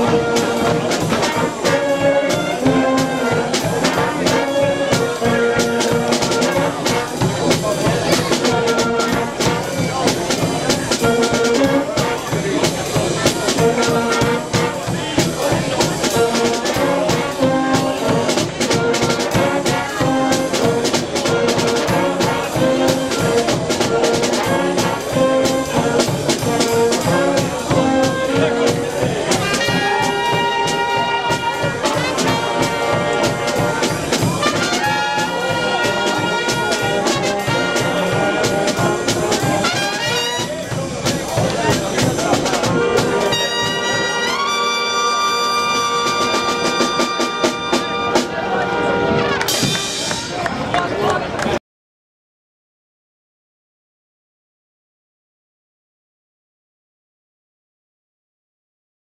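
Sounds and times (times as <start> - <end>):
bass drum and snare beat: 0.0 - 44.5, 49.4 - 50.4
brass band playing: 0.0 - 50.8.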